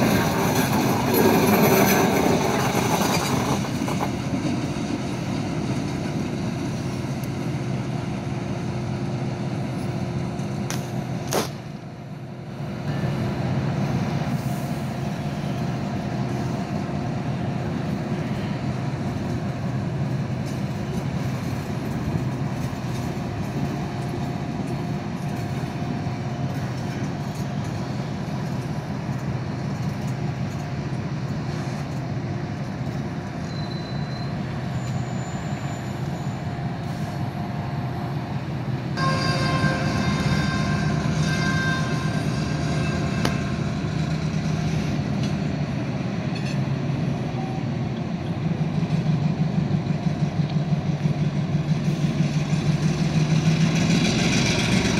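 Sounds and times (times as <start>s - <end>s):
locomotive engine drone: 0.0s - 54.9s
locomotive horn: 39.0s - 43.8s.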